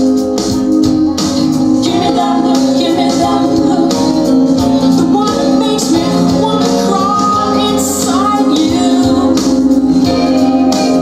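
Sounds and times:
song over loudspeakers: 0.0 - 11.0.

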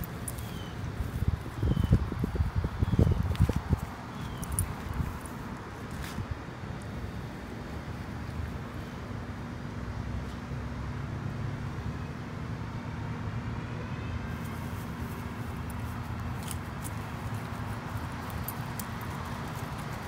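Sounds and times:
dog moving on grass: 14.4 - 20.0.

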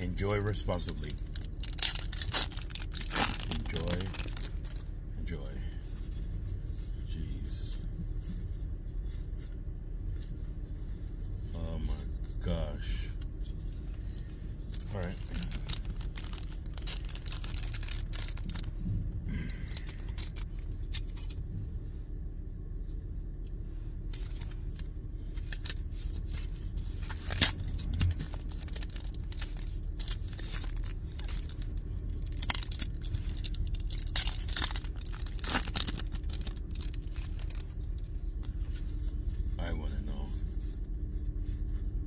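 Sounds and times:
car interior hum: 0.0 - 42.0
foil pack tearing and crinkling: 0.2 - 4.8, 14.7 - 18.7, 24.2 - 38.0
wrapper crackles: 0.2 - 4.8, 14.7 - 21.4, 24.2 - 39.0.

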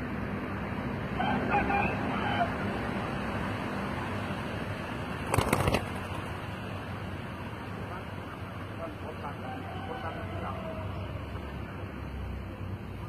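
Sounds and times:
traffic hum: 0.0 - 13.0
dove wings flapping: 5.2 - 6.4.

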